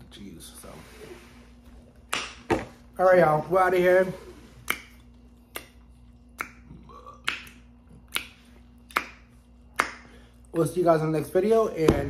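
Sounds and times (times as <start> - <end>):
faint steady hum: 0.0 - 12.0
fingers snapping: 2.1 - 2.4, 4.6 - 10.7.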